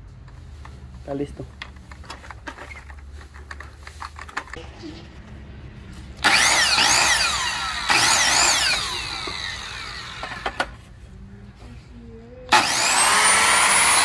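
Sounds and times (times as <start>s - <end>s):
miter saw motor whining: 6.2s - 10.8s, 12.5s - 14.0s.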